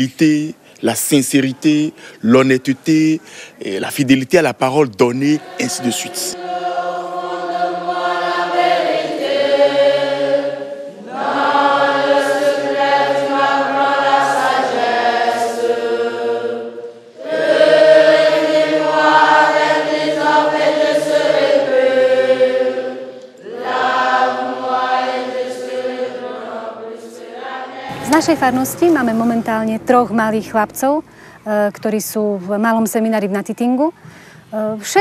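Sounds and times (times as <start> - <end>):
choir singing a hymn: 4.6 - 30.6.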